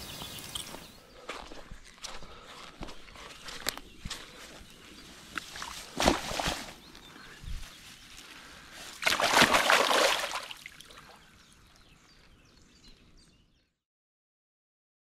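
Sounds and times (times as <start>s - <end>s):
fish splashing in shallow water: 5.3s - 6.9s, 8.8s - 11.2s.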